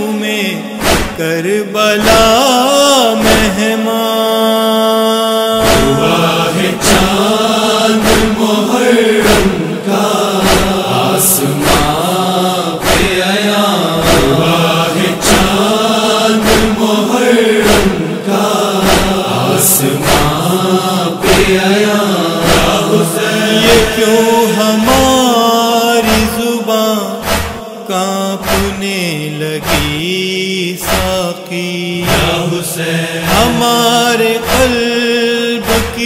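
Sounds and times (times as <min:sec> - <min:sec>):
male voices chanting: 0:00.0 - 0:36.0
steady beat of thumps: 0:00.8 - 0:01.2, 0:05.6 - 0:07.3, 0:08.0 - 0:08.4, 0:09.2 - 0:09.7, 0:10.4 - 0:12.2, 0:12.8 - 0:13.4, 0:14.0 - 0:15.7, 0:16.4 - 0:16.8, 0:17.6 - 0:18.0, 0:18.8 - 0:19.3, 0:20.0 - 0:20.5, 0:22.4 - 0:22.8, 0:26.1 - 0:26.4, 0:27.2 - 0:27.6, 0:28.4 - 0:28.8, 0:29.6 - 0:30.0, 0:30.8 - 0:31.2, 0:34.4 - 0:34.8, 0:35.6 - 0:36.0.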